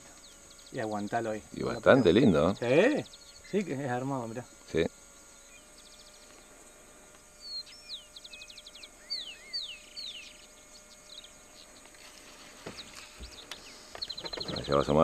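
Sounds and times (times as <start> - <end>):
birds whistling and trilling: 1.7 - 3.6, 7.4 - 11.9, 12.6 - 15.0.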